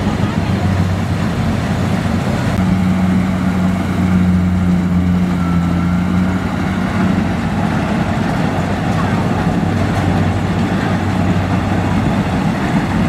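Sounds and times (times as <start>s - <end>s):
combine harvester diesel engine: 0.0s - 13.0s.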